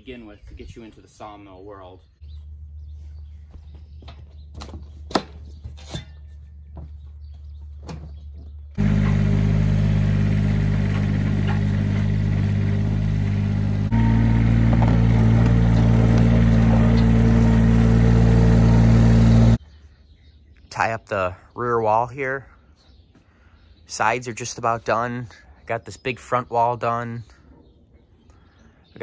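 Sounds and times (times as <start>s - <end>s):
diesel engine running: 8.7s - 19.6s
low hum: 8.7s - 19.6s.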